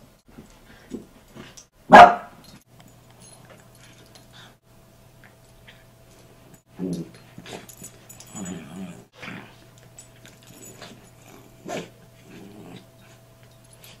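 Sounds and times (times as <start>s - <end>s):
dogs growling: 6.7s - 13.3s.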